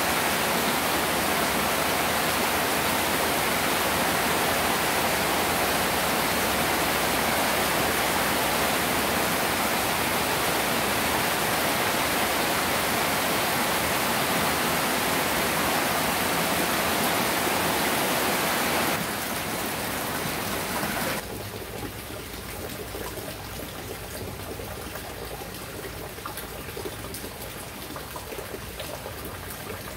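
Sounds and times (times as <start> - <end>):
heavy rain on floodwater: 0.0 - 21.2
light rain and water: 0.0 - 29.9.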